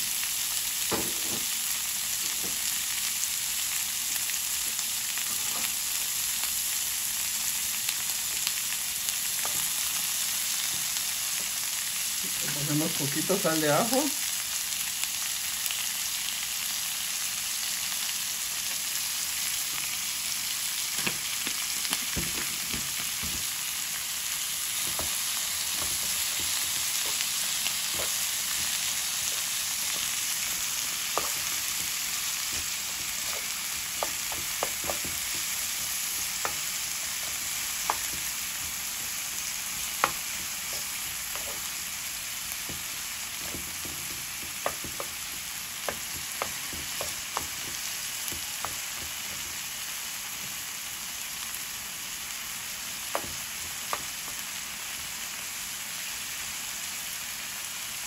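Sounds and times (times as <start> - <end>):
vegetables sizzling in oil: 0.0 - 58.0
wooden spoon stirring: 24.7 - 39.2, 39.8 - 41.8, 42.6 - 49.4.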